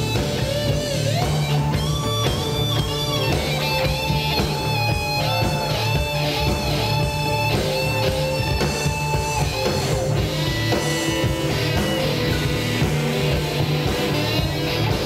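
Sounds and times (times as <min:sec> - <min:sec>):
electric guitar sustained notes: 0:00.0 - 0:15.0
rock band playing live: 0:00.0 - 0:15.0.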